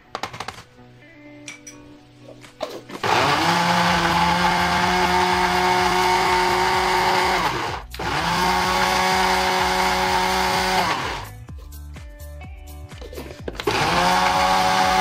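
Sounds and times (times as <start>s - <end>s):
electric food chopper whining: 2.9s - 11.3s, 13.5s - 15.0s.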